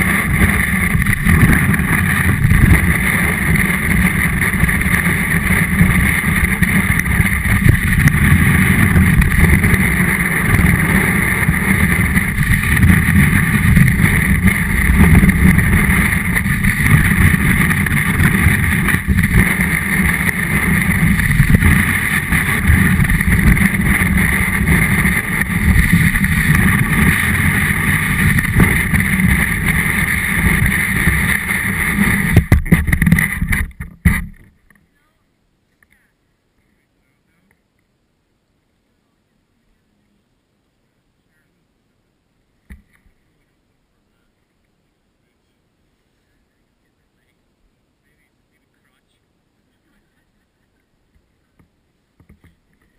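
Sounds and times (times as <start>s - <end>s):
snowboard rumbling over snow: 0.0s - 34.6s.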